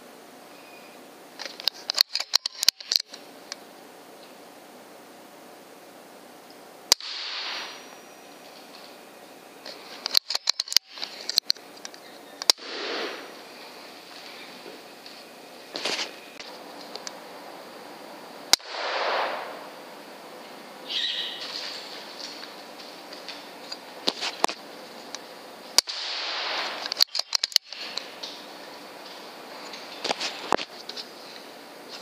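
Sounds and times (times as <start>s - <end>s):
air rifle crack: 6.9s - 7.9s, 12.4s - 13.4s, 18.5s - 19.7s, 25.8s - 28.1s
noisy rustle: 7.0s - 32.0s.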